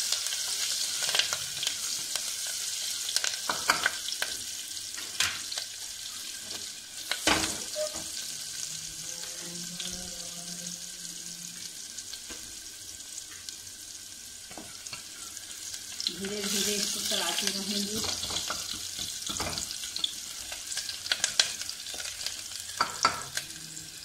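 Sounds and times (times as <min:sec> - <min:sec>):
food sizzling in hot oil: 0:00.0 - 0:24.0.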